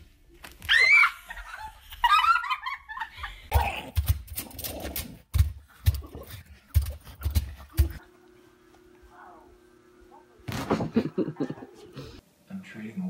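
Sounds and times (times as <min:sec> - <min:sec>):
faint steady hum: 0:06.8 - 0:13.0.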